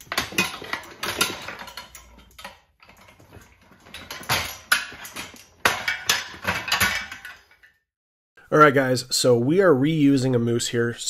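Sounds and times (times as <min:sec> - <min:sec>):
tool clacking against metal: 0:00.0 - 0:07.6.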